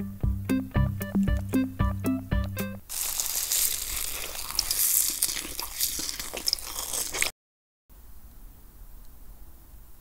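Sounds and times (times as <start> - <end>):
plucked-note music: 0.2 - 2.8
continuous crinkling and crackling: 2.9 - 7.3.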